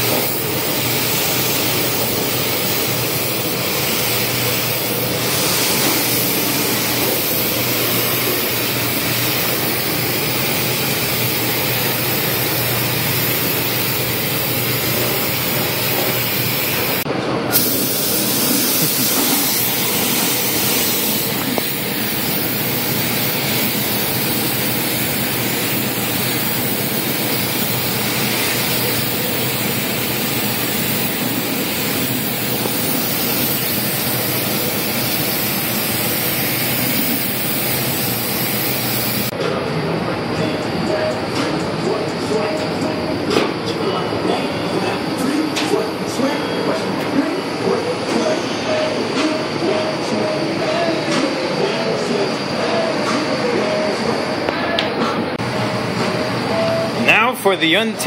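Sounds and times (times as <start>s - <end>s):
paint spray gun hissing: 0.0s - 17.0s, 17.6s - 39.3s.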